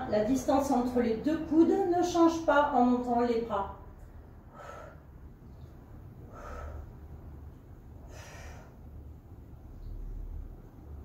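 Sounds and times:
low steady hum: 0.0 - 11.0
woman breathing: 4.3 - 9.2.

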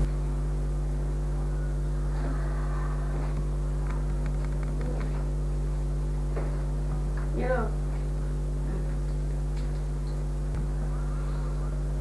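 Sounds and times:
low mains hum: 0.0 - 12.0
faint indistinct voices: 0.9 - 5.3, 10.6 - 12.0.

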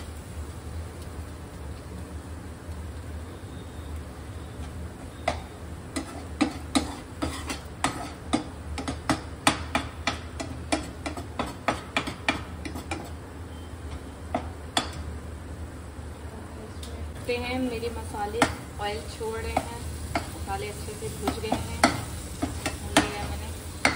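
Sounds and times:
metal spoon knocking on frying pan: 5.2 - 13.2, 14.3 - 15.1, 18.3 - 18.7, 19.4 - 20.4, 21.2 - 23.9.

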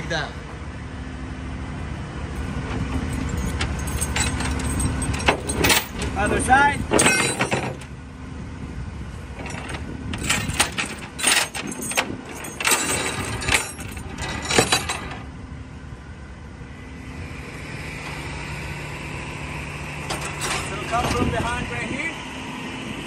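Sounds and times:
truck engine idling: 0.0 - 23.0
chain clinking on steel deck: 3.0 - 6.3, 6.9 - 7.9, 9.4 - 15.2, 20.1 - 21.0.

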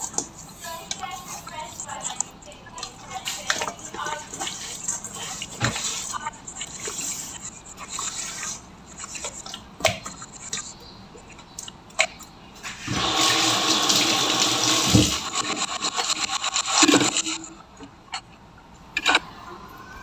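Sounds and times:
running water rushing: 12.9 - 15.4.

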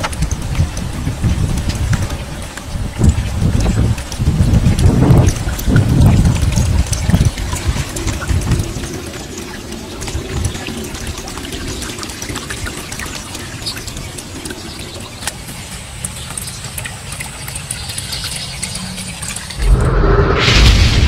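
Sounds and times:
wind rumbling on microphone: 0.0 - 15.1, 19.5 - 21.0
rain falling on a pond: 0.0 - 19.7.

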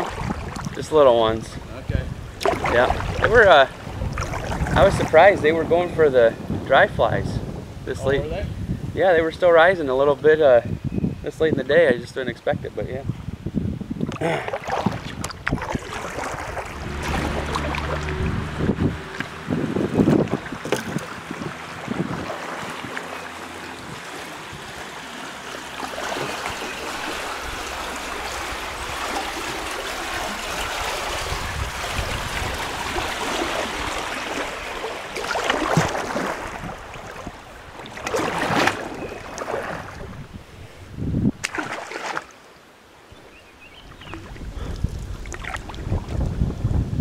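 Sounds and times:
kayak paddle splashes: 0.0 - 0.8, 2.4 - 5.3, 14.0 - 40.4, 41.4 - 42.5, 43.3 - 46.3
river water rushing over riffle: 15.6 - 40.0.

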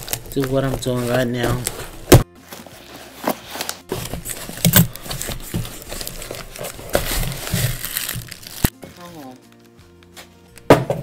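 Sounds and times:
packing tape tearing: 0.0 - 8.8
cardboard box being torn open: 6.0 - 8.7.

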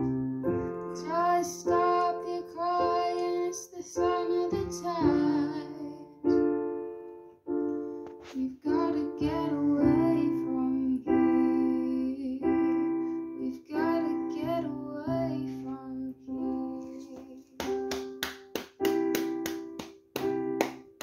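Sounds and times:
electronic keyboard piano chords: 0.0 - 21.0
girl singing: 0.8 - 6.6, 8.3 - 17.9
sharp claps: 17.6 - 21.0.

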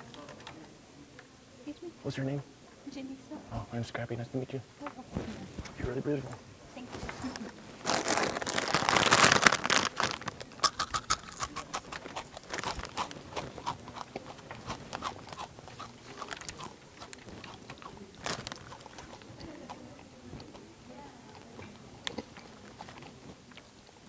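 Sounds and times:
chip bag rustling: 6.8 - 19.8
chips crunching while chewing: 7.4 - 20.6.

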